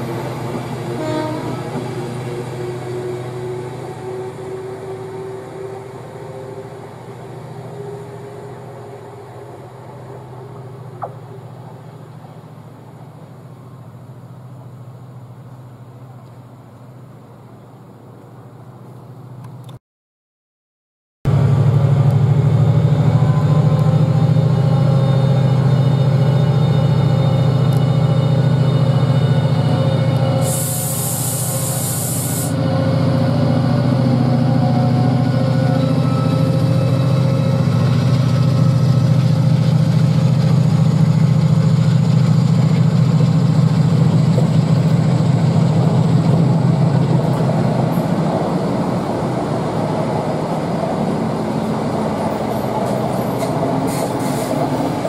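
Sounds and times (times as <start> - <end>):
diesel locomotive engine droning: 0.0 - 19.8, 21.3 - 55.0.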